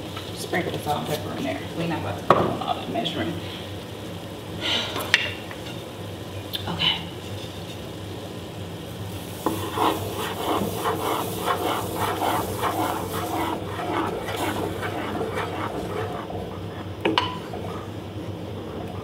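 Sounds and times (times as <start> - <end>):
pot bubbling: 0.0 - 19.0
wooden spoon scraping saucepan: 9.4 - 17.9.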